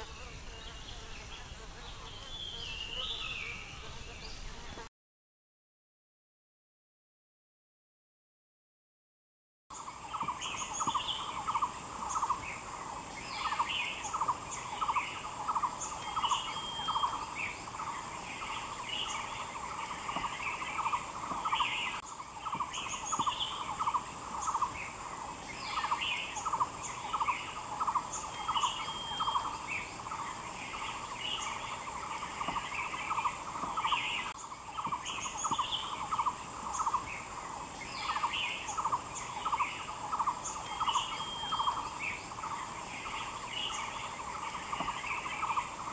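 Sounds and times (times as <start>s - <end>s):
birds chirping and calling: 0.0s - 4.8s, 9.8s - 45.9s
high-pitched insect drone: 9.8s - 45.9s.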